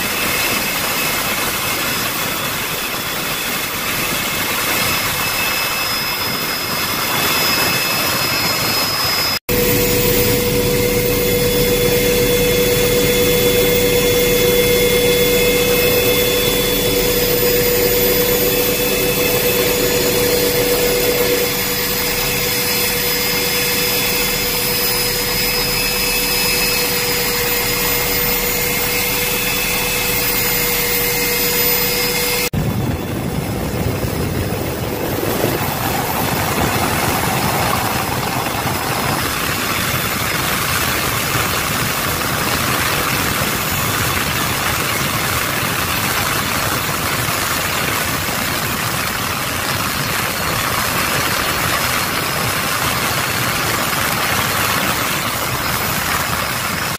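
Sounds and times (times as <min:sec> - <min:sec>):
aircraft engine drone: 0:00.0 - 0:56.9
steady whine: 0:00.0 - 0:56.9
rough rushing noise: 0:09.5 - 0:41.9.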